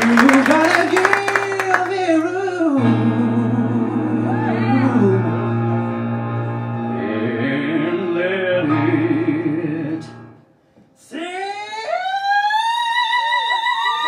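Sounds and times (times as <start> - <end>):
sustained chords and melody: 2.8 - 10.5.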